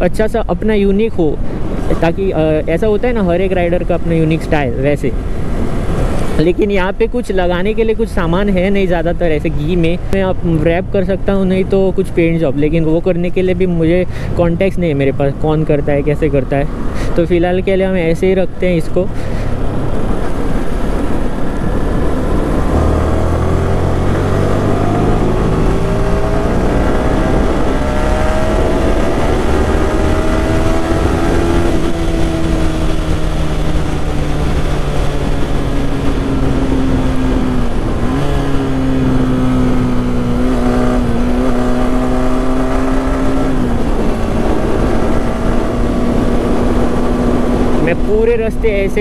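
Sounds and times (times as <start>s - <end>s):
wind rush: 1.2s - 12.2s, 13.4s - 49.0s
motorcycle engine accelerating: 19.5s - 49.0s.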